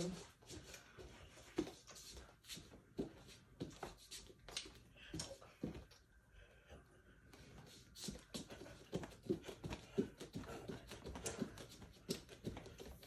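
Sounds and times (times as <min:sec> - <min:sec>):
bare feet dancing on wooden floor: 0:00.0 - 0:06.0, 0:07.7 - 0:13.0.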